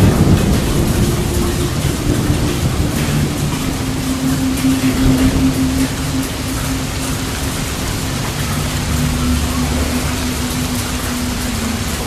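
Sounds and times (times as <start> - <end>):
heavy rain pouring: 0.0 - 12.0
low hum: 0.0 - 12.0.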